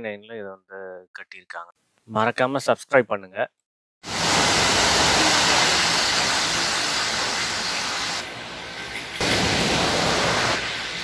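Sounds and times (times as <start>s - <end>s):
rush of falling water: 4.0s - 8.3s, 9.2s - 11.0s.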